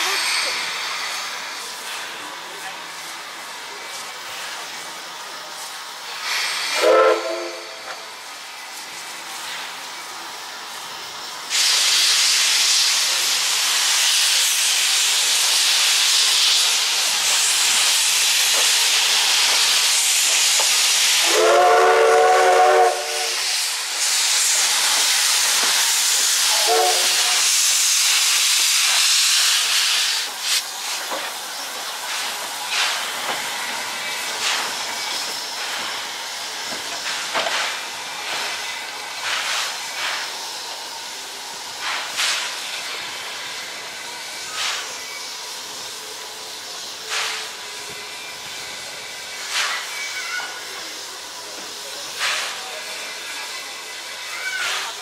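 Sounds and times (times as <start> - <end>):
steam locomotive hissing steam: 0.0 - 55.0
steam whistle blast: 6.7 - 7.8, 21.2 - 23.5, 26.5 - 27.6.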